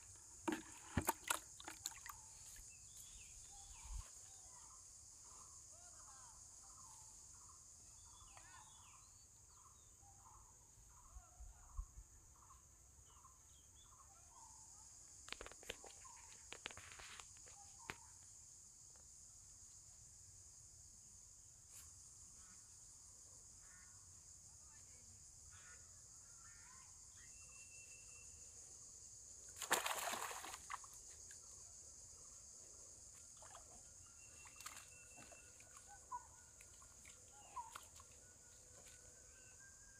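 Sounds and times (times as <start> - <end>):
bird calls: 33.4 - 39.9.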